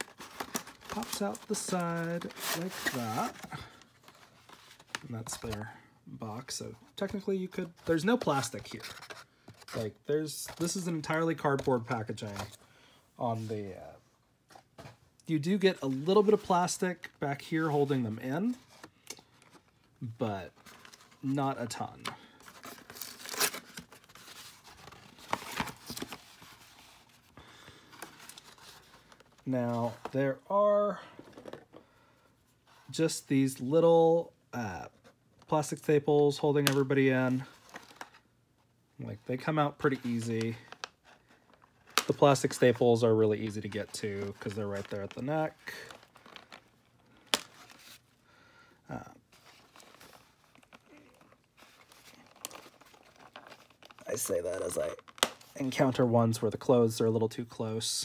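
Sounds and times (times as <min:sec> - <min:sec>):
cardboard packaging scraping and rustling: 0:00.0 - 0:05.5, 0:22.4 - 0:27.3
packaging handling: 0:00.0 - 0:05.7, 0:07.0 - 0:12.6, 0:15.6 - 0:30.2, 0:37.4 - 0:38.2, 0:39.8 - 0:48.1, 0:49.2 - 0:55.6.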